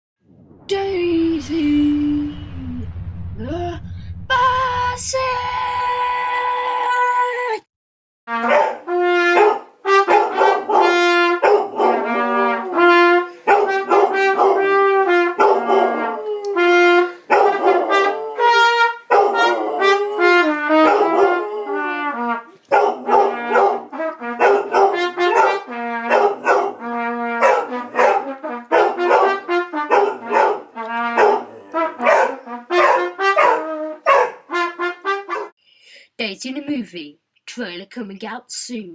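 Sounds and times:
trumpet playing held notes: 8.3s - 35.5s
dog howling: 8.4s - 12.2s, 13.5s - 34.5s.

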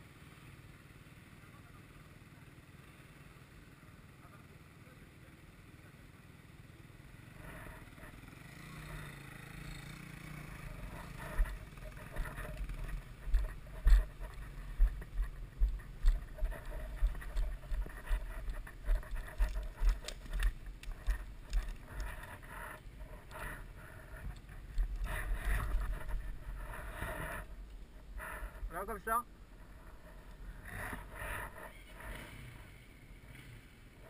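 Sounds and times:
low thumps and knocks on camera: 11.1s - 28.6s.

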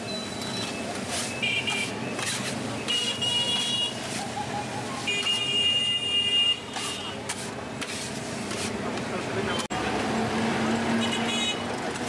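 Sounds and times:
metal spatula scraping griddle: 1.0s - 5.5s, 6.7s - 8.8s.

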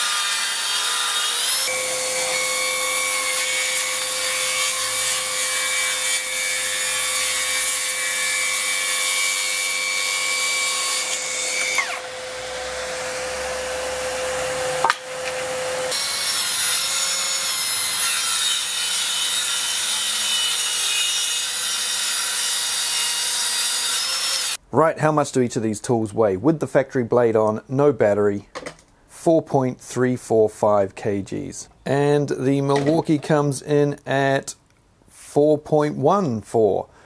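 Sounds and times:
cordless saw whining: 0.0s - 24.6s
saw starting with rising whine: 11.0s - 16.0s.

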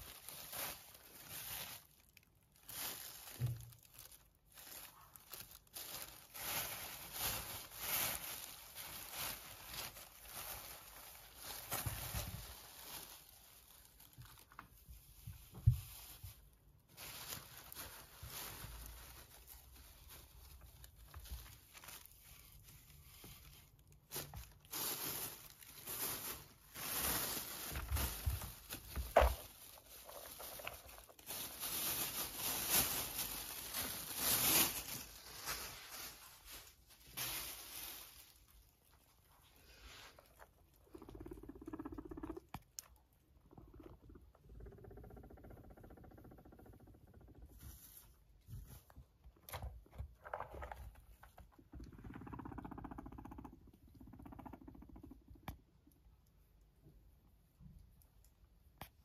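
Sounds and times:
plastic bags crinkling: 0.0s - 46.3s.

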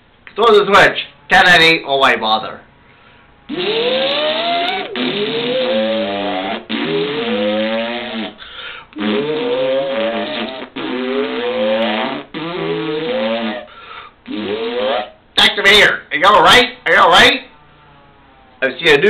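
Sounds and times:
whooping time machine sound effect: 3.5s - 6.2s.

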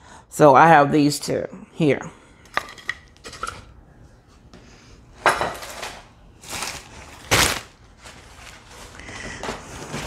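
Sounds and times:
small items clattering: 5.4s - 10.0s
wrapping rustling: 5.8s - 10.0s.

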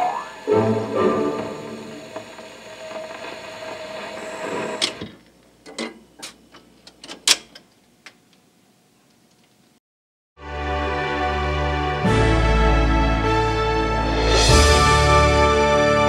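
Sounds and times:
jukebox record music: 0.0s - 5.2s
record changer clicks and clunks: 1.3s - 8.4s.

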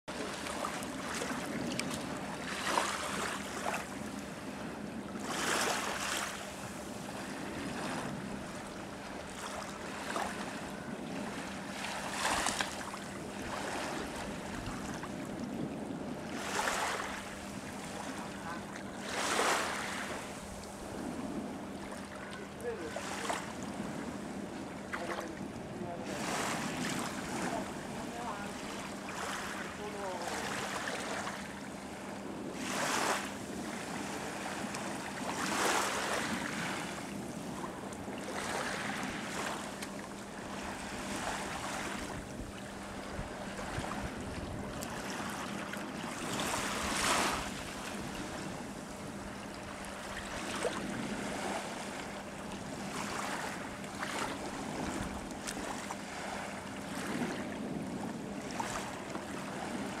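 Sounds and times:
steady low hum: 0.1s - 60.0s
water lapping at shore: 0.1s - 60.0s
wind on microphone: 41.0s - 50.0s.

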